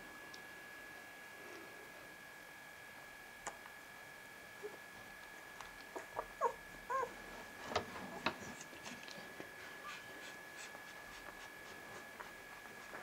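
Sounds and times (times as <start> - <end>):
faint high whine: 0.0 - 13.0
puppies squeaking and whimpering: 5.9 - 7.1.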